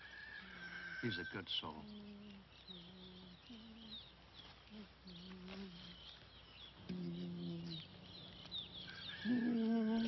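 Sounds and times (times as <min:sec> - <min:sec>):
songbirds chirping: 0:00.0 - 0:10.0
man humming: 0:06.8 - 0:07.9, 0:09.2 - 0:10.0.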